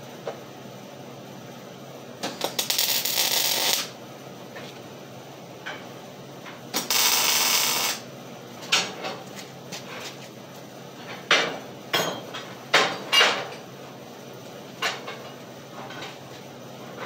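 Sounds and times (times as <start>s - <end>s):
welding arc crackling and hissing: 2.2s - 4.0s, 6.7s - 8.1s.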